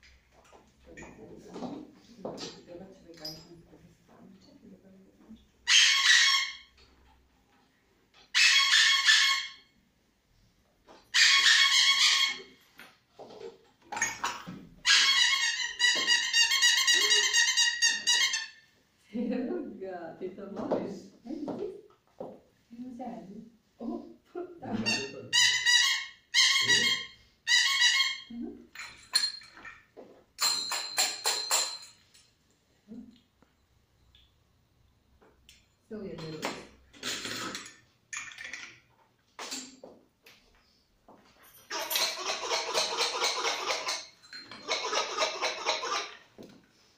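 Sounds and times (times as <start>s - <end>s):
high squeaky toy tone: 5.7s - 6.7s, 11.2s - 12.6s, 14.8s - 18.6s, 24.8s - 28.3s, 41.7s - 46.2s
metallic toy jingle: 41.4s - 45.1s.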